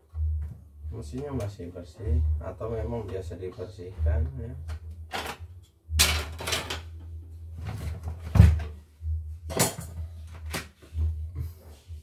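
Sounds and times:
plastic parts knocking and rattling: 4.7s - 8.8s.

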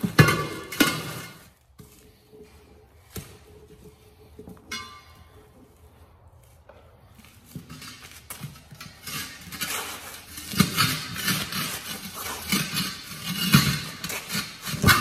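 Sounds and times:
tire rubbing and clattering on rim: 0.0s - 15.0s.

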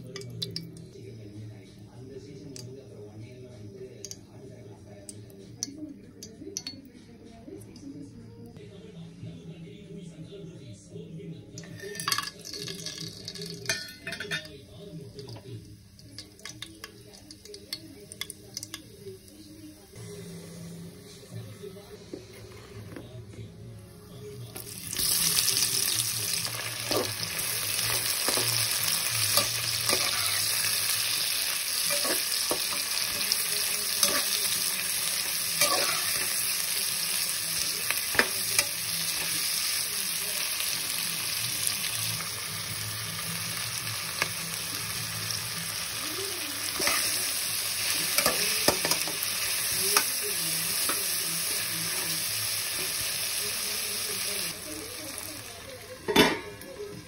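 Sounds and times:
onions sizzling in hot oil: 11.7s - 19.9s, 24.5s - 57.0s
metal spatula scraping a pot: 35.6s - 36.3s.

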